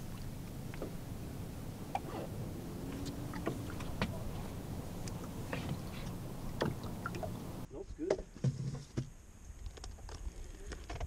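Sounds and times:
water lapping against boat hull: 0:00.0 - 0:07.7
gear knocking against boat: 0:02.9 - 0:07.4.

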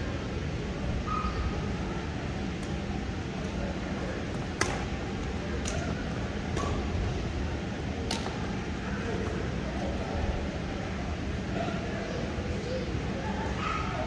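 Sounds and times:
steady low hum: 0:00.0 - 0:14.0
rackets striking shuttlecock: 0:04.4 - 0:04.9, 0:08.1 - 0:08.4.

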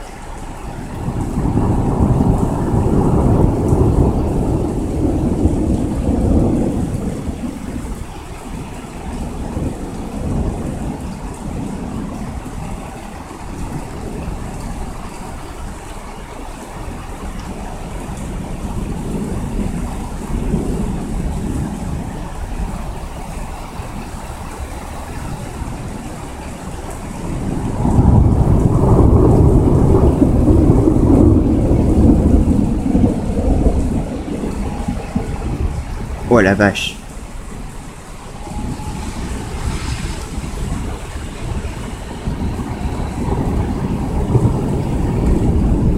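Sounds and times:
rain falling: 0:00.0 - 0:45.9
thunder rumbling: 0:00.0 - 0:45.9.

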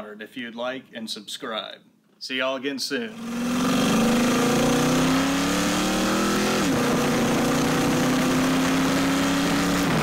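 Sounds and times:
car engine accelerating: 0:03.1 - 0:10.0.

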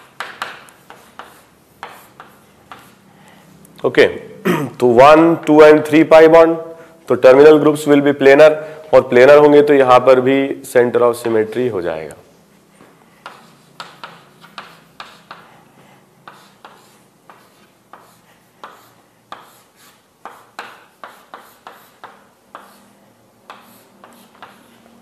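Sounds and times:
pen scratching on surface: 0:00.0 - 0:03.0, 0:13.2 - 0:25.0.

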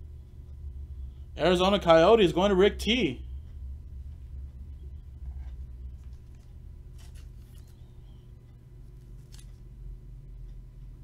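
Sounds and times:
low steady hum: 0:00.0 - 0:11.0
trading card rustling and clicking: 0:05.2 - 0:08.1, 0:08.9 - 0:09.7.

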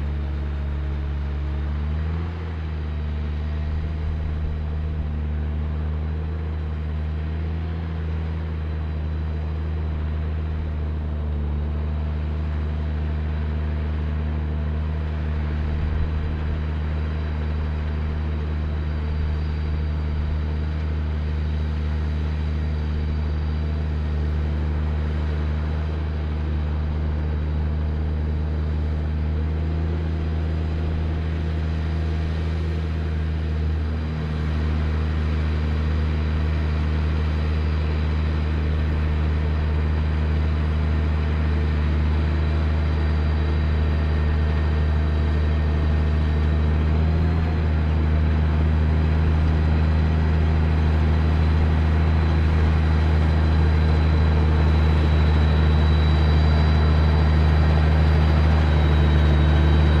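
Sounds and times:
tractor diesel engine under load: 0:00.0 - 1:00.0
faint high whine: 0:14.6 - 1:00.0.

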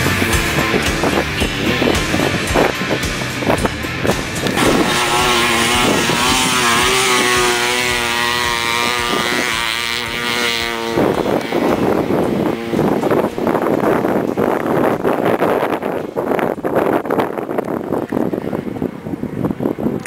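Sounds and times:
dirt bike engine revving: 0:00.0 - 0:17.5.

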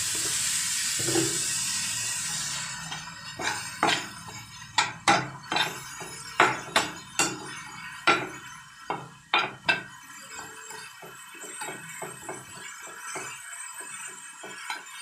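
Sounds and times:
fish frying with crackles: 0:00.0 - 0:15.0
utensil clinking against pan: 0:02.9 - 0:10.6.

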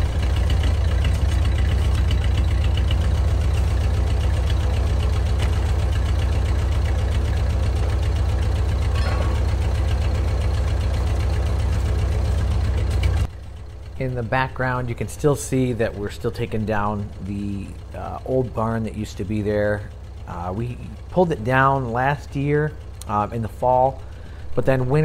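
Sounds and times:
tractor engine idling: 0:00.0 - 0:25.0
brief clank: 0:08.9 - 0:09.5.

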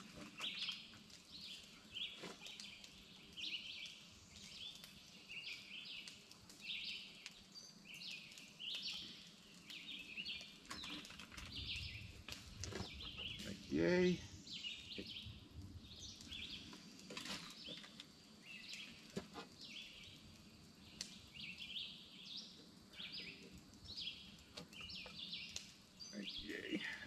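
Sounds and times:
birds chirping: 0:00.2 - 0:27.0
faint clicks: 0:04.6 - 0:12.7, 0:20.3 - 0:21.2, 0:22.6 - 0:25.8.

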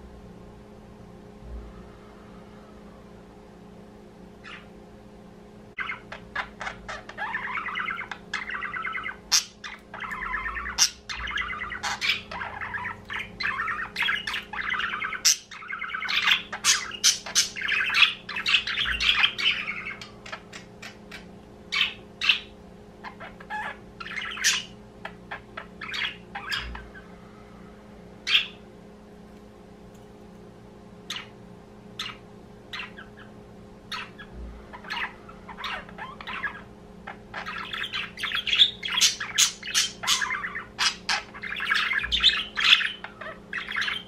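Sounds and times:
budgerigars chattering: 0:05.8 - 0:27.0, 0:33.9 - 0:44.0.

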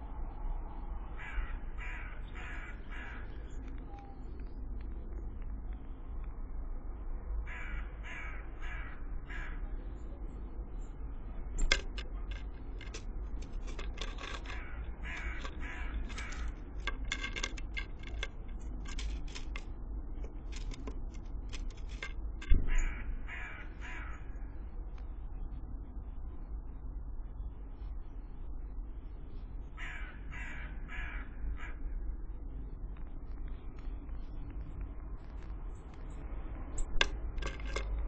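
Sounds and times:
crow-like cawing calls: 0:01.1 - 0:03.4, 0:07.4 - 0:09.8, 0:14.6 - 0:16.6, 0:22.6 - 0:24.5, 0:29.8 - 0:32.0
bird pecking seeds with sharp taps: 0:11.6 - 0:22.7, 0:36.8 - 0:38.0.

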